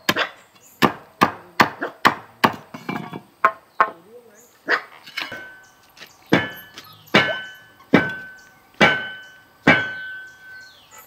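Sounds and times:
chopping strikes on bamboo: 0.0 - 2.8, 6.3 - 10.1.

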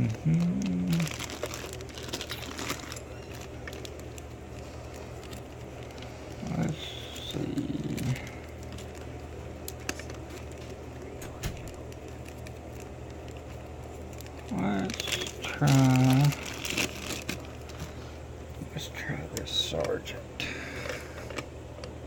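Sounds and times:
voice murmuring: 0.0 - 1.2, 6.4 - 8.5
steady low hum: 0.0 - 22.0.

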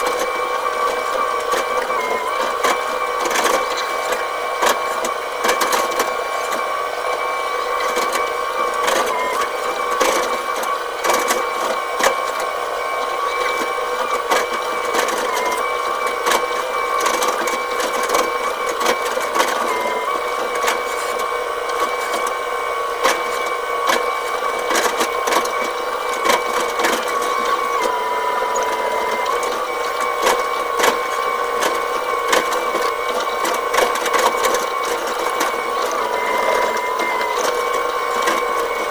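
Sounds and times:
excavator engine and hydraulic whine: 0.0 - 38.9.

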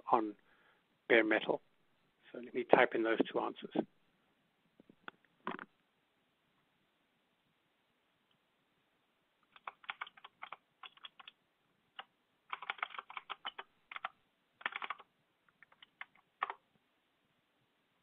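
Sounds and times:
typing on computer keyboard: 9.4 - 16.6.

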